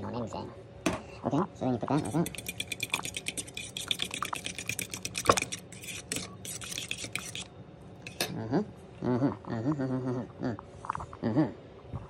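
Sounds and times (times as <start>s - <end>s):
fork clicking against metal bowl: 2.0s - 7.5s
liquid sloshing: 2.0s - 7.5s.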